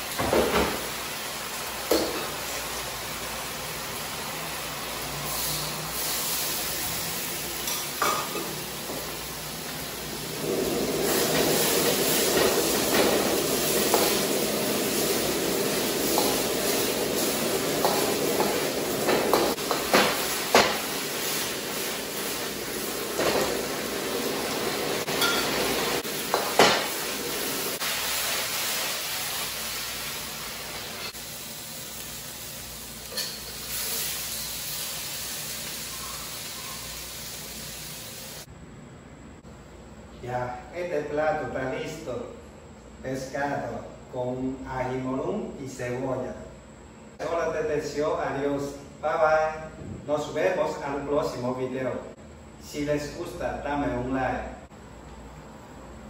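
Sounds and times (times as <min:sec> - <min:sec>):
food sizzling in a wok: 0:00.0 - 0:38.5.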